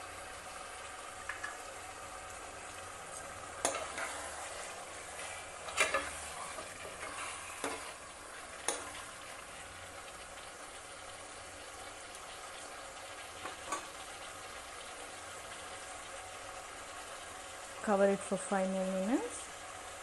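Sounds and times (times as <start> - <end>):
chicken sizzling in a pot: 0.0 - 20.0
spatula knocking and scraping pot: 3.6 - 8.0.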